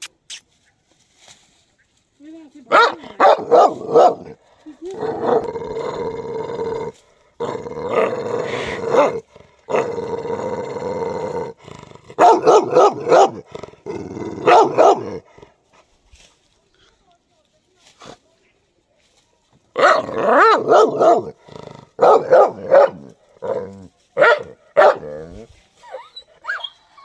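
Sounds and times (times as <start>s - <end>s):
dog barking: 2.7s - 4.3s, 12.2s - 13.4s, 14.4s - 15.2s, 19.8s - 21.3s, 22.0s - 23.0s, 24.2s - 25.2s.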